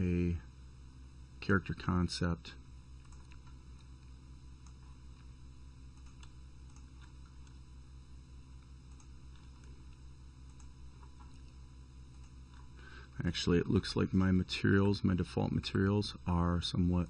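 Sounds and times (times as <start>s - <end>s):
low electrical hum: 0.0s - 17.0s
computer mouse clicks: 3.0s - 3.9s, 5.9s - 7.6s, 8.9s - 12.7s.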